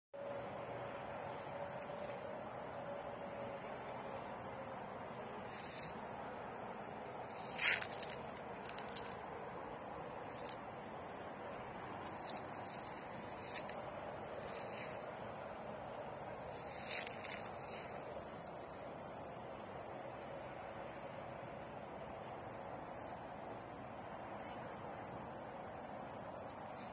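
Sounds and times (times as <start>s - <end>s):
crickets trilling: 0.2s - 21.0s, 21.6s - 26.9s
sharp clicks and rustles: 7.4s - 9.2s.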